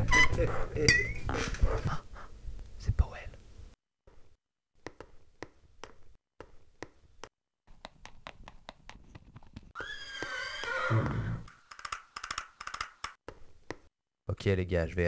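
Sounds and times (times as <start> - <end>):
horse whinnying: 9.8 - 11.5.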